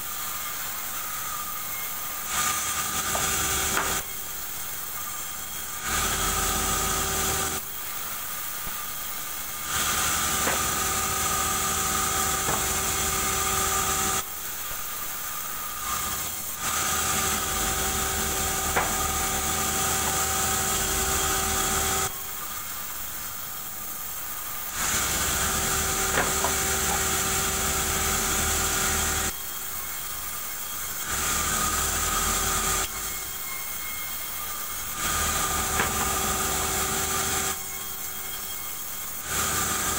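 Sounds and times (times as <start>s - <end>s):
band saw cutting wood: 0.0s - 39.9s.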